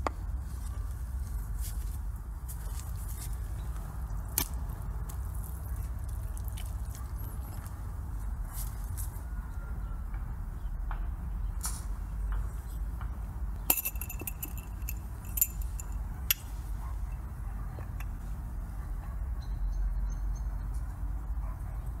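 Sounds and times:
steady low rumble: 0.0s - 22.0s
sharp ringing clinks: 13.7s - 17.3s.

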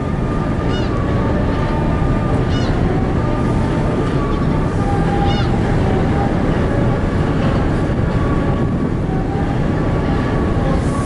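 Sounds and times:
ship engines humming: 0.0s - 11.0s
wind rumble on microphone: 0.0s - 11.0s.

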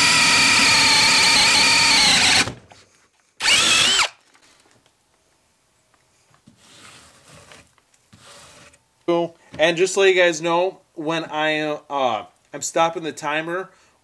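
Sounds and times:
cordless drill boring through wood: 0.0s - 2.6s, 3.4s - 4.2s
drill revving: 0.0s - 2.6s, 3.4s - 4.2s.

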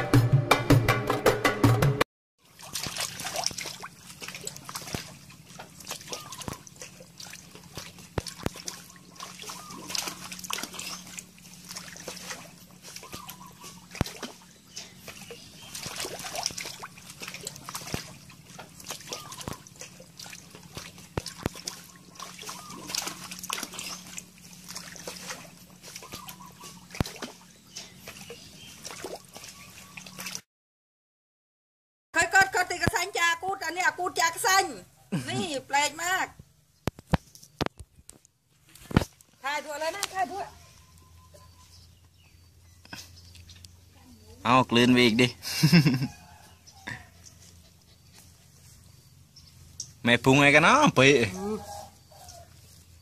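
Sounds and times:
muddy water splashing: 2.4s - 30.4s, 32.2s - 53.0s.

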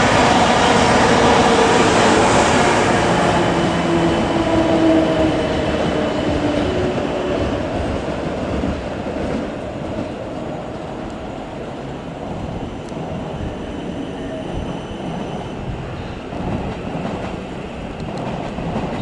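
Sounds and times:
held train tones: 0.0s - 19.0s
train wheels rumbling on rail: 0.0s - 19.0s.

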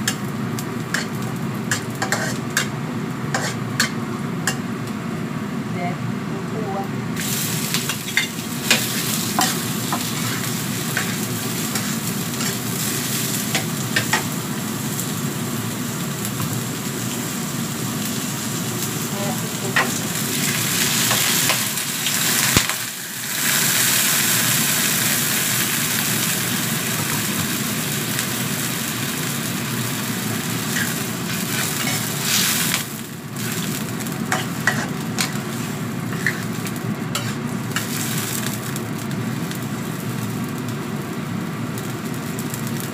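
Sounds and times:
water hissing in a hot wok: 0.0s - 4.6s, 7.2s - 42.9s
vegetables sizzling in hot oil: 0.0s - 5.7s, 7.0s - 42.9s
metal spatula scraping a pan: 0.9s - 2.7s, 3.3s - 4.6s, 7.9s - 12.6s, 30.8s - 32.7s, 34.3s - 38.0s.

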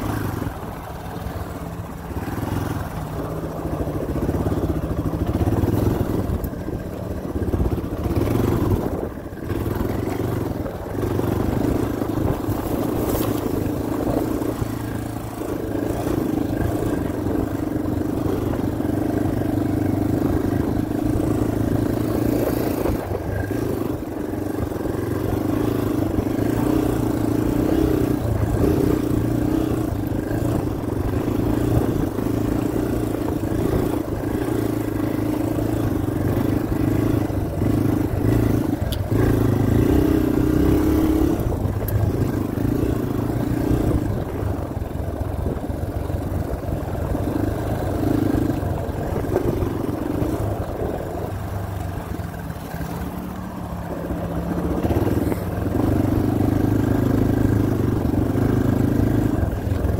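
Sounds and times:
dirt bike engine running: 0.0s - 59.9s
wind: 0.0s - 59.9s.

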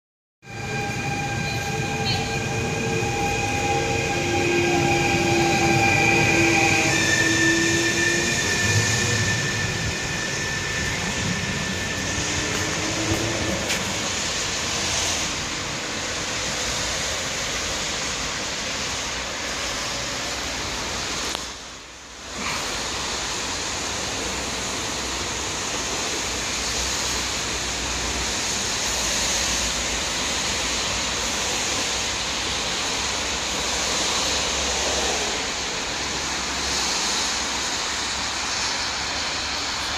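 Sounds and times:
wheels rumbling on rail: 0.4s - 39.9s
electric train motor whine: 0.5s - 15.4s
steady hiss: 13.8s - 39.9s.

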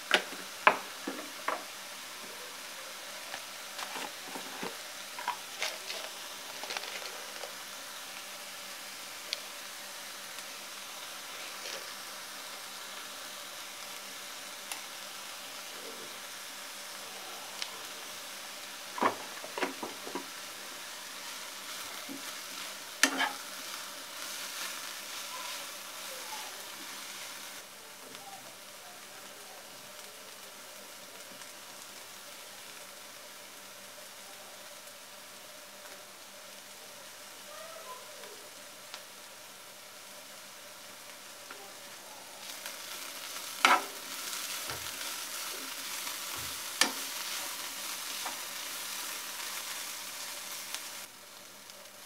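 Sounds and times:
food sizzling in frying pan: 0.0s - 52.0s
metal spoon clinking on pan: 23.0s - 23.4s.

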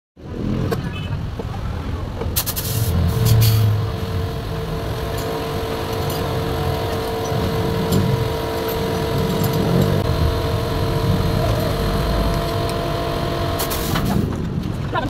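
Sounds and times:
motor humming: 2.7s - 14.3s.

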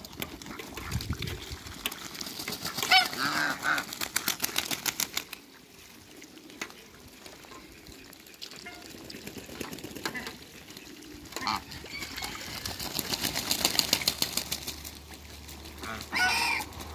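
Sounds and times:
ducks splashing in a puddle: 0.0s - 16.9s
duck honking call: 2.6s - 3.9s, 15.8s - 16.8s.

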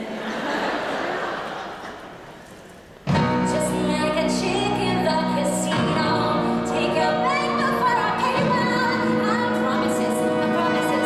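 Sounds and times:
orchestra playing chords: 3.0s - 11.0s
woman singing: 3.2s - 11.0s.

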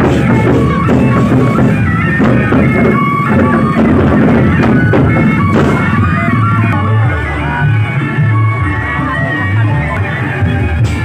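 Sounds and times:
barrel drums beaten: 0.0s - 6.8s
cymbals: 0.0s - 8.5s
held melodic line: 0.0s - 11.0s.

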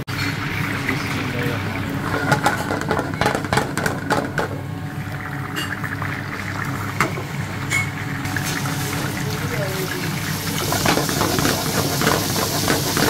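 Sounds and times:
garlic sizzling in hot oil: 8.2s - 13.0s.

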